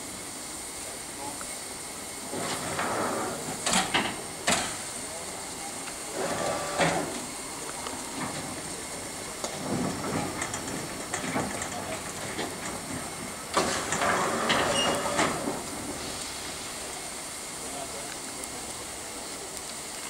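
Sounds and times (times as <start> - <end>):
rush of steam: 0.0 - 20.0
steam locomotive hissing: 0.0 - 20.0.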